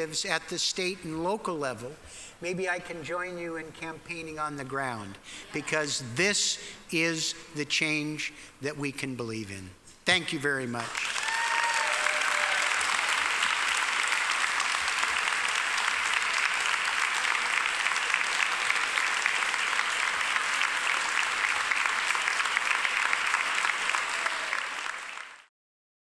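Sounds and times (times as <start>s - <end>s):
audience applauding: 10.8s - 25.5s.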